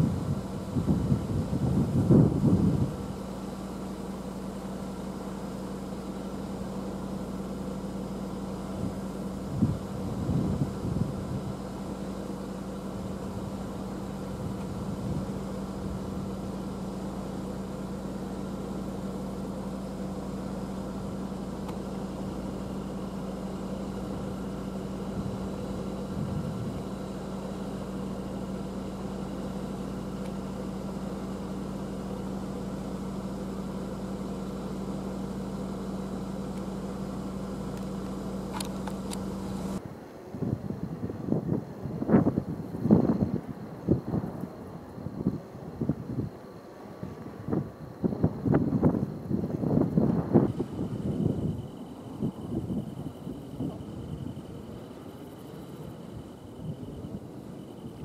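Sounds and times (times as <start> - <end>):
wind turbine humming: 0.0 - 58.0.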